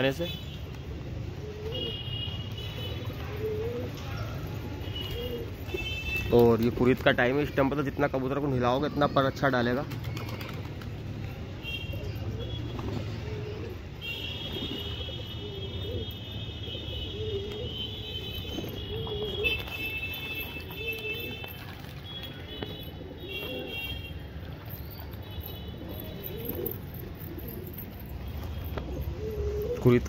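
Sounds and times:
pigeons cooing: 1.0s - 5.9s, 11.9s - 30.0s.

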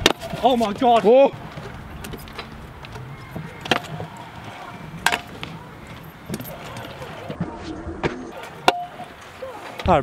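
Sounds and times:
scooter wheels rolling on concrete: 0.0s - 10.0s
scooter clacking on concrete: 0.1s - 7.4s.

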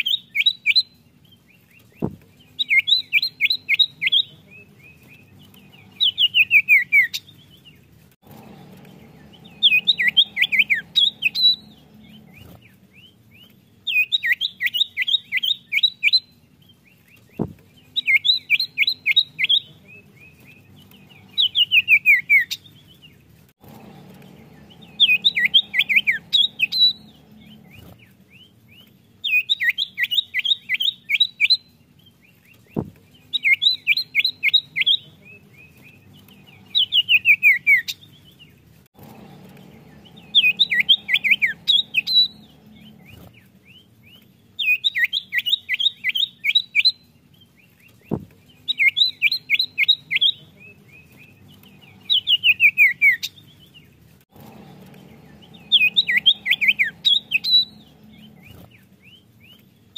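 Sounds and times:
bird singing high falling notes: 2.0s - 7.6s, 8.4s - 13.3s, 17.7s - 22.7s, 23.6s - 28.5s, 33.2s - 38.4s, 39.0s - 44.0s, 48.4s - 53.4s, 54.4s - 59.3s.

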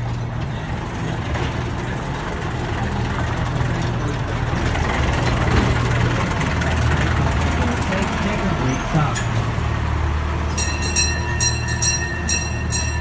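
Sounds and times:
locomotive engine drone: 0.0s - 13.0s.

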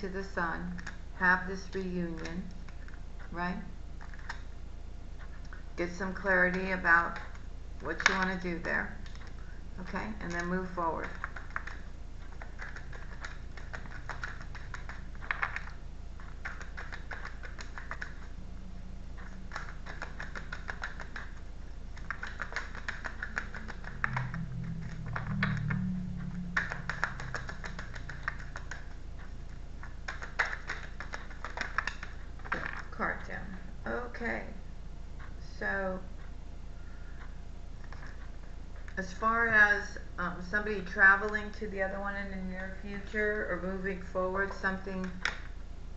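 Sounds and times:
cards being shuffled: 10.2s - 18.3s, 19.2s - 25.9s, 26.5s - 29.0s, 29.8s - 32.9s.

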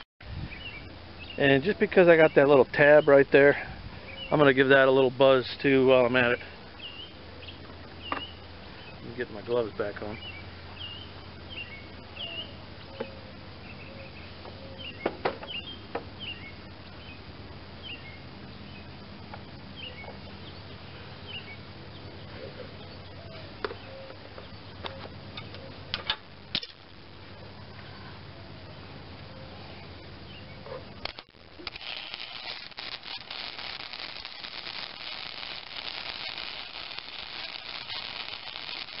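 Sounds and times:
steady low hum: 0.2s - 39.0s
small birds chirping: 0.4s - 39.0s.

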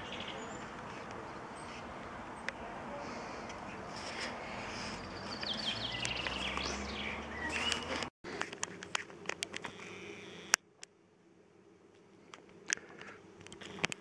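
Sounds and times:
small bird chirping: 4.6s - 8.1s
sharp clicks: 12.4s - 14.0s.

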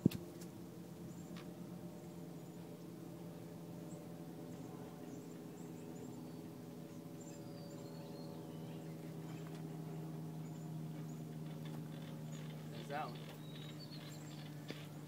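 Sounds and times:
low hum with overtones: 0.0s - 15.0s
bird chirps and whistles: 13.4s - 14.4s.

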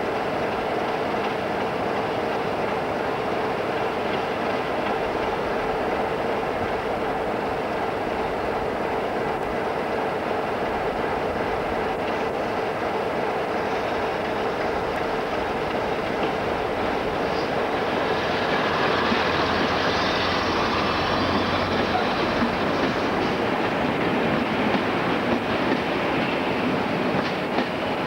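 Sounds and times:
wheels clicking over rail joints: 21.6s - 28.0s.

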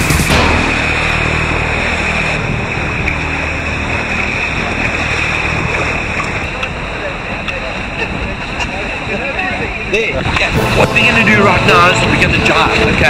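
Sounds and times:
water rushing along a hull: 0.0s - 13.0s
wind on microphone: 10.2s - 13.0s.

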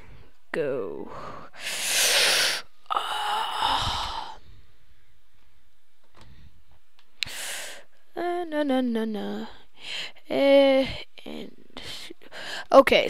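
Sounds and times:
person sighing and breathing: 1.0s - 4.7s
person humming: 2.9s - 4.4s, 8.1s - 9.6s.

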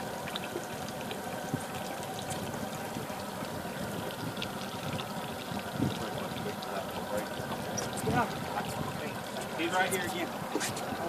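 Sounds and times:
water trickling and pouring: 0.0s - 11.0s.

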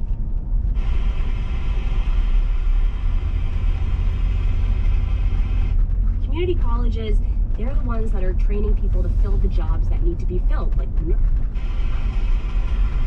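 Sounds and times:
car road and engine rumble: 0.0s - 13.0s
faint steady buzz: 0.6s - 6.5s.

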